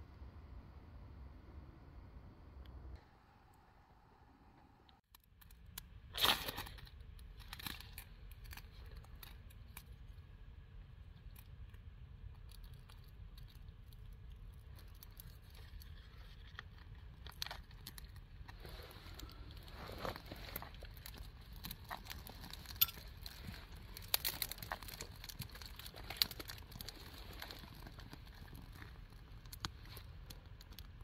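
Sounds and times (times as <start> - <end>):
small scrapes and crackles: 5.2 - 31.0
bark tearing: 14.9 - 30.9.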